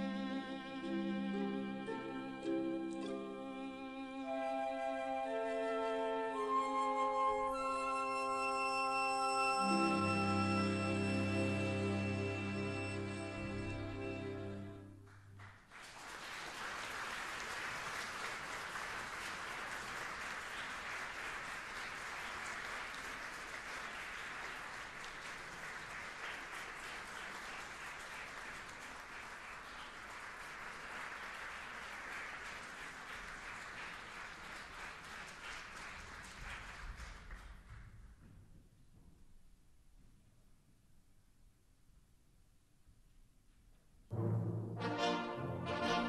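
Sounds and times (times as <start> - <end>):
audience applauding: 14.9 - 37.9.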